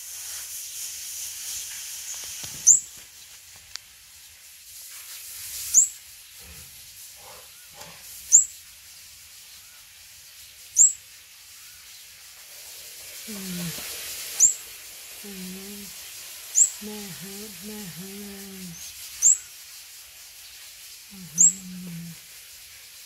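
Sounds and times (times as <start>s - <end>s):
steady hiss: 0.0s - 23.0s
bird chirping high: 14.4s - 14.6s, 16.5s - 19.5s, 21.1s - 22.2s.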